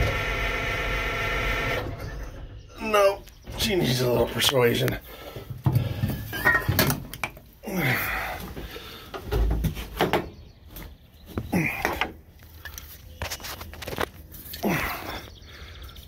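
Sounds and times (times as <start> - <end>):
knocks and clunks on steel: 5.4 - 7.4
person grunting: 7.6 - 8.4, 11.5 - 12.0, 14.6 - 15.3.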